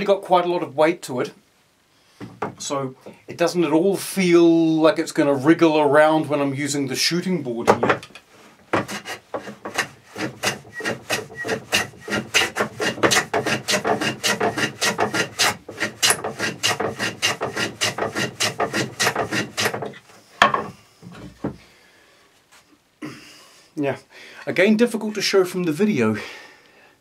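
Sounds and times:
hand plane strokes on wood: 8.7s - 20.2s.

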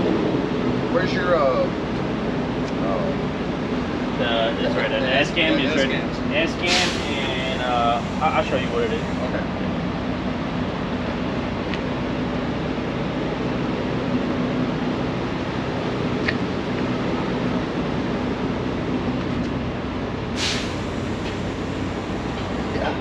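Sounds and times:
truck engine idling: 0.0s - 23.0s
short hiss: 6.7s - 7.2s, 20.4s - 21.4s.

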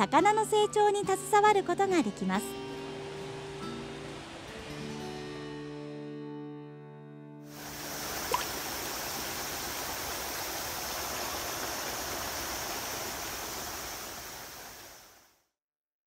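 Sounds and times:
river water rushing over rocks: 7.5s - 15.3s.

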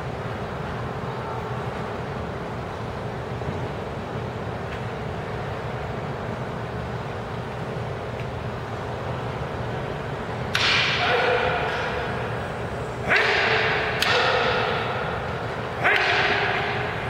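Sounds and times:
wooden swords striking: 10.5s - 12.0s, 13.1s - 15.1s, 15.8s - 16.9s.

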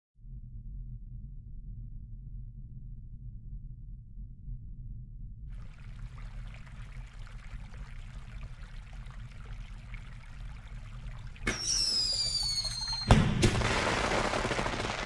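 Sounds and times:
fizzing trickling hiss: 5.6s - 13.2s.

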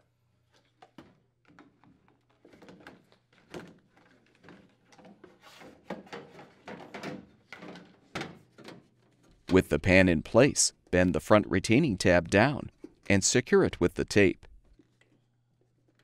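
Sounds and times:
plastic pan knocking and scraping: 0.9s - 9.6s.

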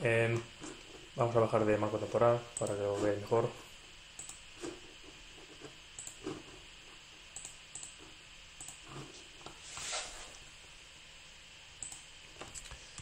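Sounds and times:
computer mouse clicks: 4.2s - 4.4s, 6.0s - 6.3s, 7.4s - 8.0s, 8.6s - 9.6s, 11.8s - 13.0s.

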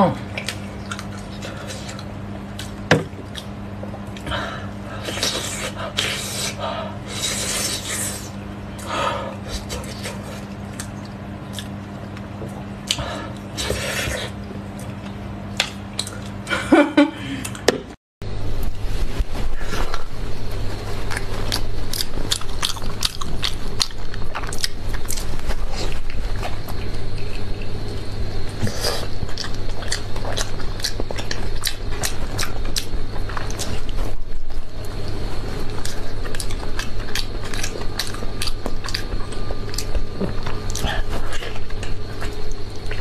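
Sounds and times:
steady low hum: 0.0s - 43.0s
wet slurping and sucking: 5.0s - 8.4s
wet chewing and mouth smacks: 9.5s - 13.0s.

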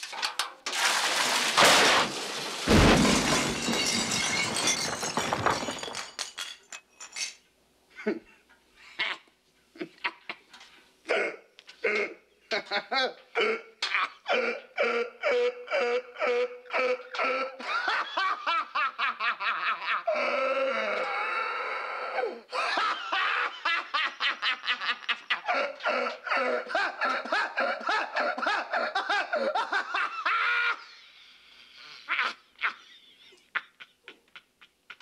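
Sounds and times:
man laughing: 8.0s - 10.5s, 11.8s - 20.9s, 22.5s - 30.9s, 32.0s - 35.0s.

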